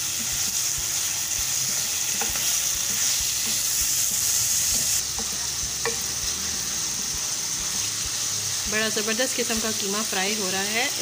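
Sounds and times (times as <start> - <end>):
meat and onions sizzling: 0.0 - 11.0.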